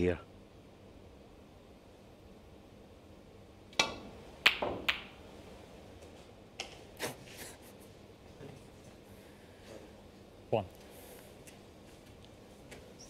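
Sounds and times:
snooker balls clicking: 3.7s - 5.2s
cue hitting ball: 3.8s - 5.2s.

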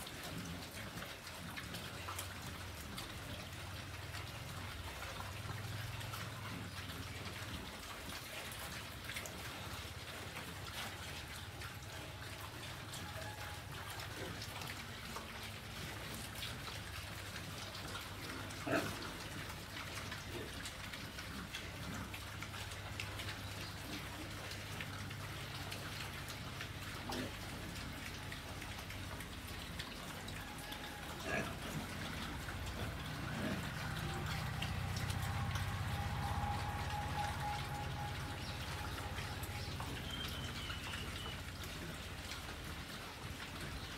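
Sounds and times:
low steady hum: 0.0s - 43.9s
pigs crunching and chewing: 0.0s - 43.9s.

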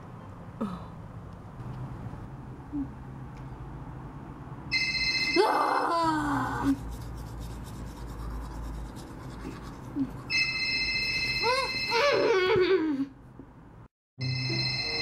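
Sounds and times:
phone ringtone: 4.7s - 5.6s, 10.3s - 12.4s, 14.2s - 15.0s
rubbing and scratching of doll: 6.6s - 10.5s.

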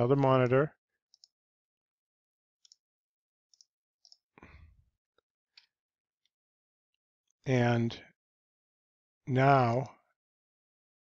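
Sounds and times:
computer mouse clicks: 1.1s - 1.3s.

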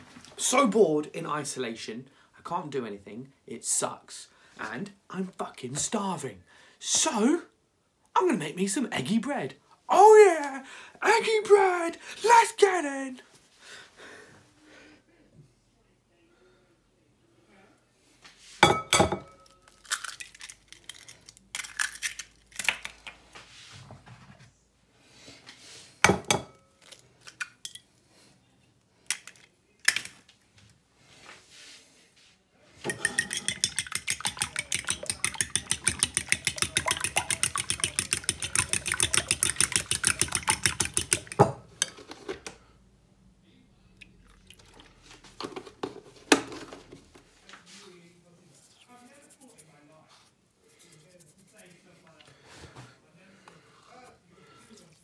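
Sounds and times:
eggs knocked against ceramic bowl: 32.9s - 41.6s
fork beating eggs clinking: 32.9s - 42.0s.

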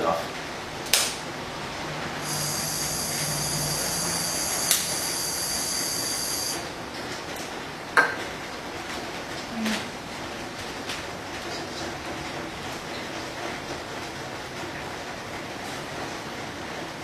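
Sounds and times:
gas hissing from spray can: 2.2s - 6.6s.

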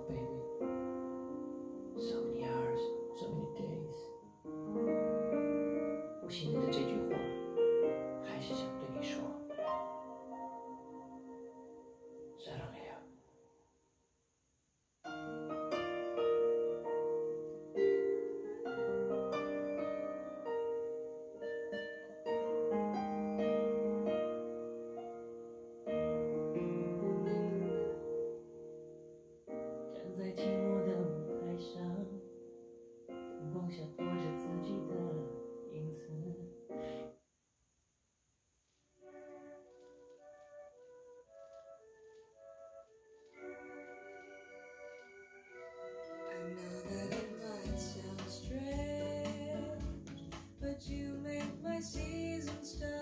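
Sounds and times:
piano chords: 0.0s - 13.6s, 15.1s - 37.2s, 39.0s - 53.0s
song with guitar and bass beat: 47.1s - 53.0s.

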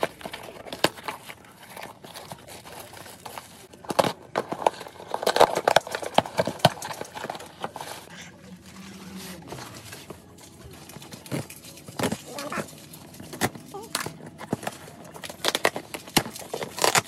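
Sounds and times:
tape and cardboard ripping: 11.0s - 17.0s.

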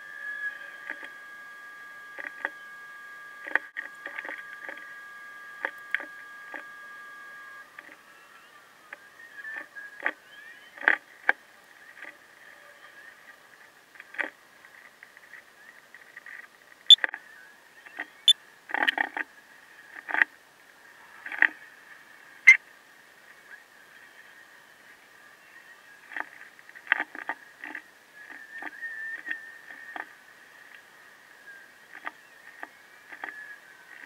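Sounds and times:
faint high hum: 0.0s - 34.0s.

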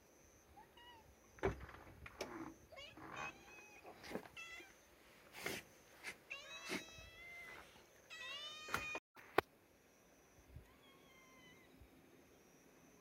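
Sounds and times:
cats meowing: 2.3s - 4.8s, 6.3s - 9.0s, 10.6s - 11.8s.

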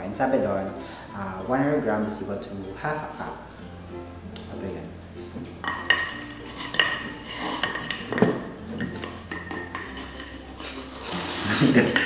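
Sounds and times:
measuring cup scraping canister: 6.4s - 12.0s.

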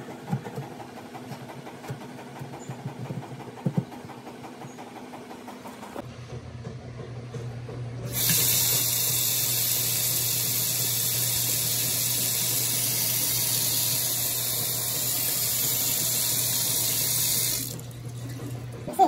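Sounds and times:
faucet running into a steel sink: 8.1s - 18.6s.

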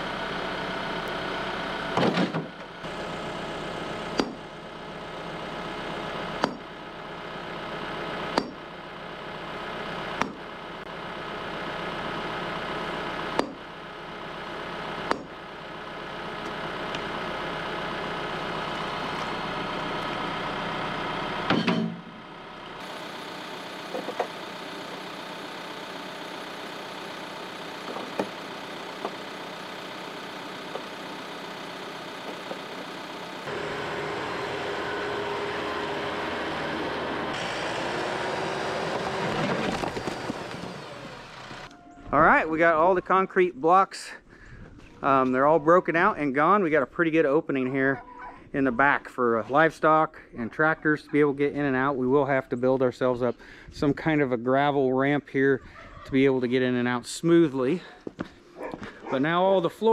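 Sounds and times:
tractor diesel engine idling: 0.0s - 44.4s
heavy clunk: 1.9s - 2.6s, 21.5s - 22.1s
sledgehammer striking concrete: 4.1s - 4.5s, 6.4s - 6.7s, 8.4s - 8.6s, 10.2s - 10.4s, 13.3s - 13.7s, 15.0s - 15.4s.

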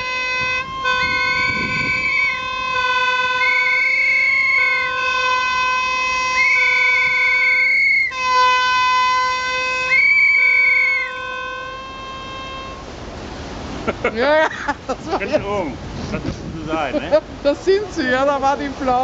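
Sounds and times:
higher ship horn blasts: 0.0s - 13.8s
steady ship horn tone: 0.0s - 13.8s.

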